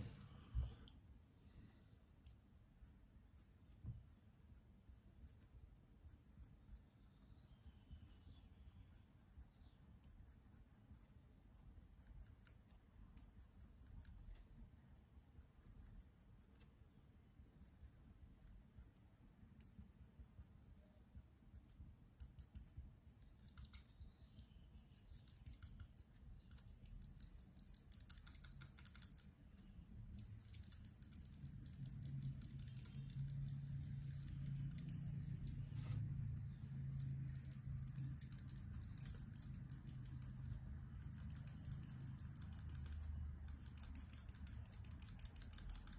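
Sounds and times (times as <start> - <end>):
low steady hum: 0.0 - 45.9
marker scratching on paper: 2.3 - 36.1.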